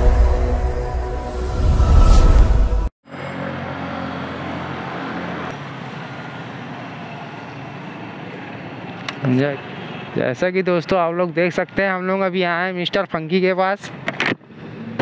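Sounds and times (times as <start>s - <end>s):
intro music: 0.0s - 2.9s
vehicle engine hum: 1.5s - 10.2s
street and traffic ambience: 3.0s - 15.0s.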